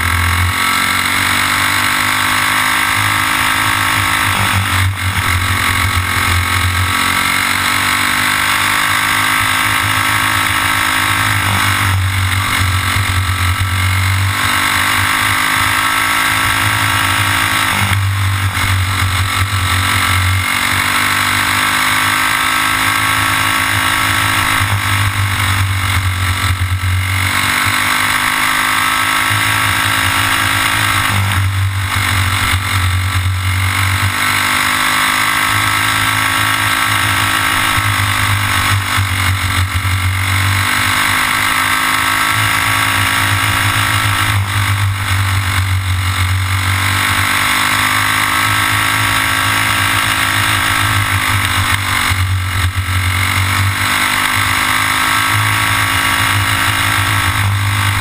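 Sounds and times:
racing kart engine: 0:00.0 - 0:58.0.

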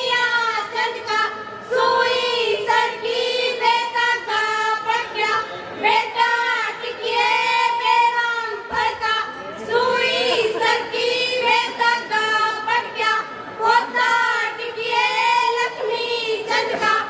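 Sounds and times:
women singing folk song together: 0:00.0 - 0:17.0.

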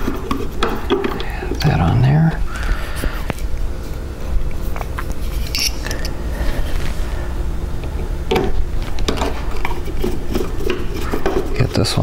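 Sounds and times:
steady low hum: 0:00.0 - 0:12.0
screwdriver clicks and scrapes: 0:05.4 - 0:06.1.

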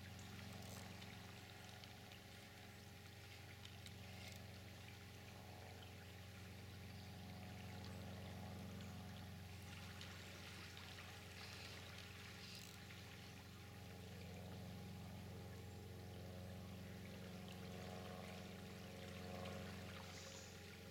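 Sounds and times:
low steady hum: 0:00.0 - 0:20.9
river water flowing: 0:00.0 - 0:20.9.

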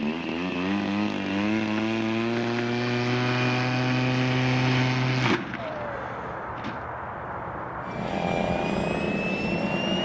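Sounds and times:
model aircraft engine running: 0:07.9 - 0:10.0.

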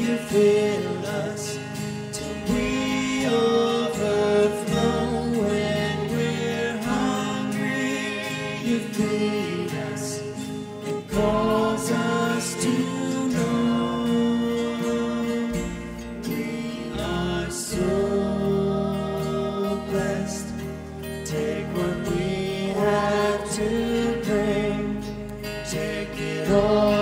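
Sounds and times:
person singing: 0:00.0 - 0:27.0
worship band playing slow song: 0:00.0 - 0:27.0.

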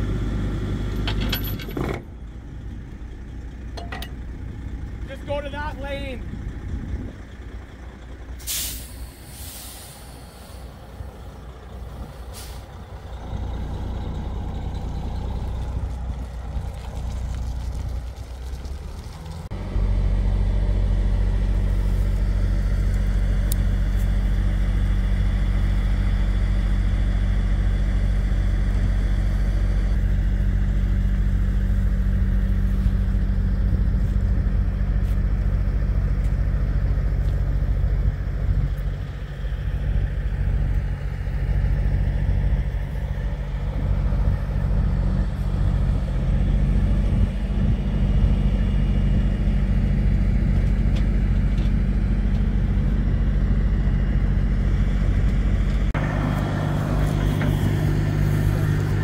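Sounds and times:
diesel truck engine idling: 0:02.0 - 0:59.0
air hissing released: 0:08.4 - 0:11.0, 0:12.2 - 0:12.8.

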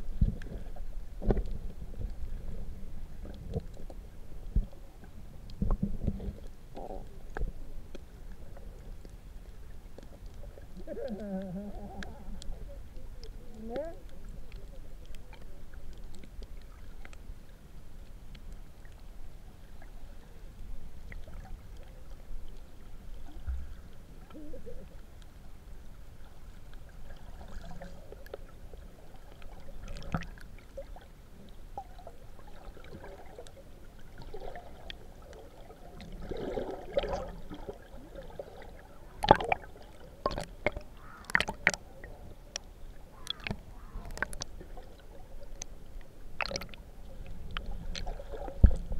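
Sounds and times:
underwater rumble of moving water: 0:00.0 - 0:48.9
faint clicks and gurgles: 0:00.1 - 0:48.9
sharp knocks and splashes: 0:39.2 - 0:41.8, 0:43.2 - 0:44.5, 0:46.4 - 0:46.8.

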